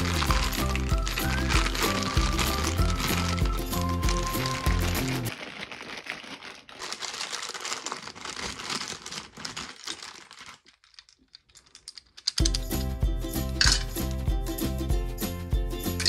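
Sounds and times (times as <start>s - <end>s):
background music: 0.0s - 5.3s, 12.4s - 16.0s
plastic crinkling and rustling: 0.0s - 12.4s.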